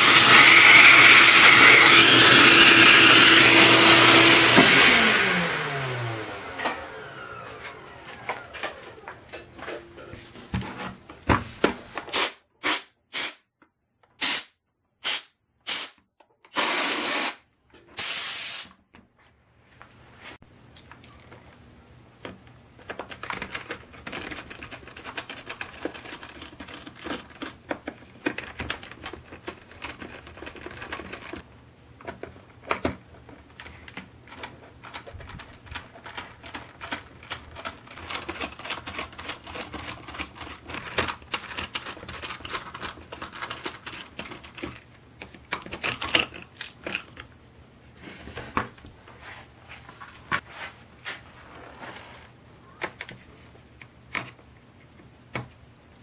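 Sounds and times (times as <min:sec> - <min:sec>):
screwdriver clicking and scraping on plastic: 0:22.2 - 0:31.4, 0:32.0 - 0:47.3.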